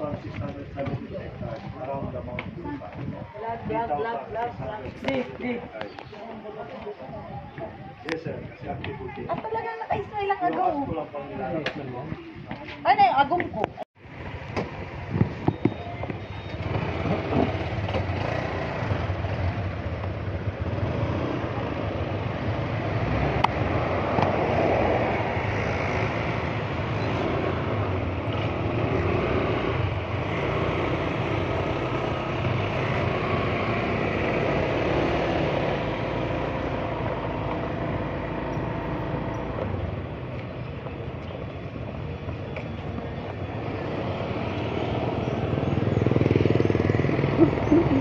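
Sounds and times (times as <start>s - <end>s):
motorcycle running: 14.0s - 48.0s.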